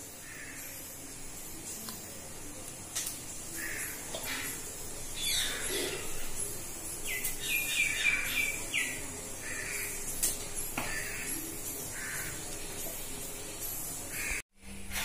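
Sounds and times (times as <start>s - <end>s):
birds chirping: 3.4s - 15.0s.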